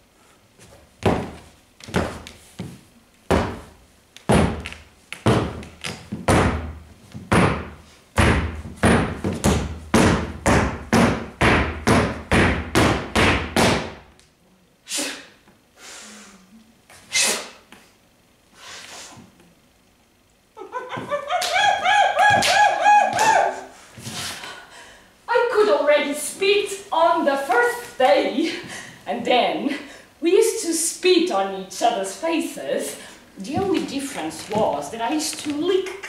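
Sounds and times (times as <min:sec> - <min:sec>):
loud thumps in reverberant room: 0:01.0 - 0:02.3, 0:03.3 - 0:14.1.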